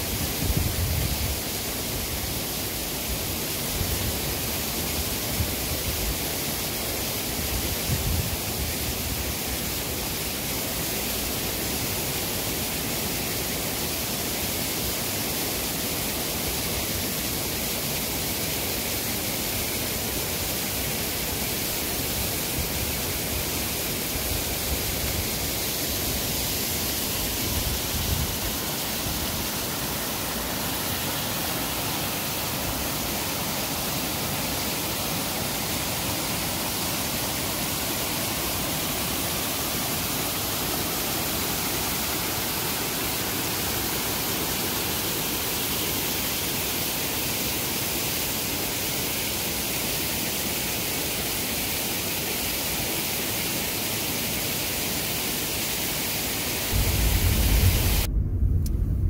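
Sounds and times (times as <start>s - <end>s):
waterfall rushing: 0.0s - 58.1s
low rumbles: 56.7s - 59.0s.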